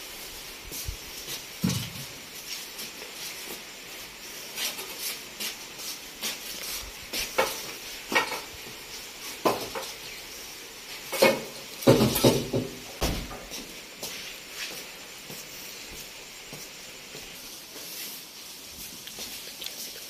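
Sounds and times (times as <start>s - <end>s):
rain hissing: 0.0s - 12.0s, 13.2s - 20.0s
wooden frame knocking and clattering: 11.2s - 13.4s.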